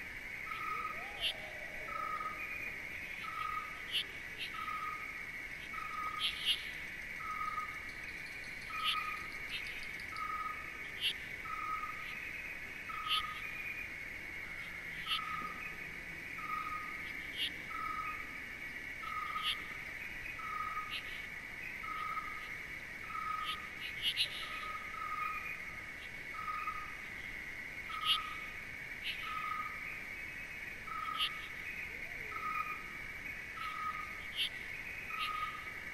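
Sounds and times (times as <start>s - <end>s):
insect chorus: 0.0s - 35.9s.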